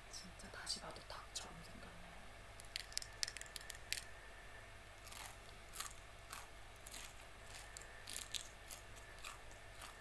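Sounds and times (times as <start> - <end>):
prawn shell crackling and crunching: 2.6 - 4.2, 5.0 - 10.0.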